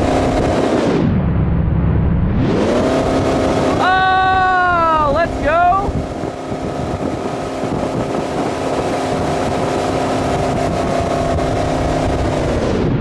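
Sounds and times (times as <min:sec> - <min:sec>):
towboat engine humming: 0:00.0 - 0:13.0
wind: 0:00.0 - 0:13.0
rushing water: 0:02.6 - 0:12.6.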